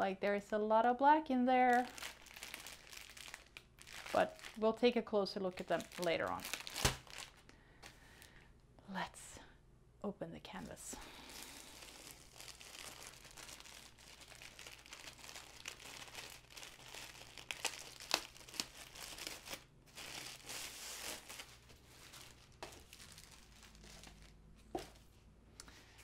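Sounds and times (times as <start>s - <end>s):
wrapper crinkling and rustling: 1.6s - 7.5s, 11.2s - 25.0s.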